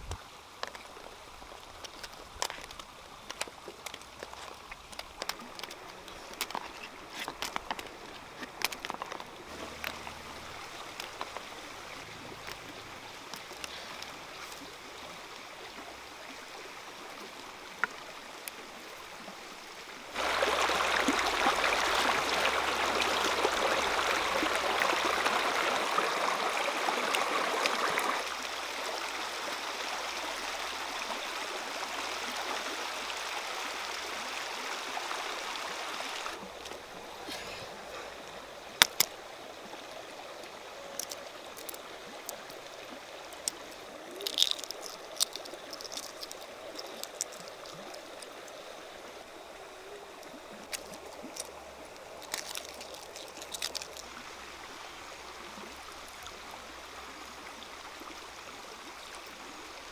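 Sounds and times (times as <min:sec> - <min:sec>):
stream flowing over rocks: 0:00.0 - 0:59.9.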